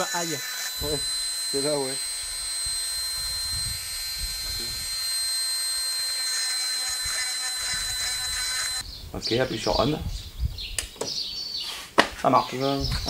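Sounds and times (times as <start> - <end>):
rotary tool whining: 0.0 - 8.9.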